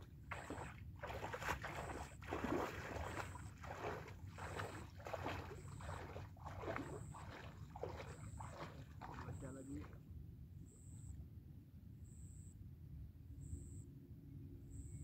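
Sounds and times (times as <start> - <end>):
water splashing around wading legs: 0.0 - 10.0.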